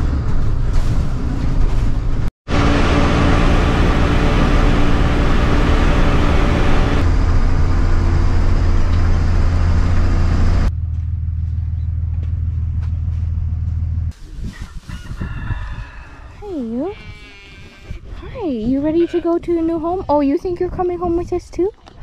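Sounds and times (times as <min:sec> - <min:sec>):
van engine and road noise: 0:00.0 - 0:14.2.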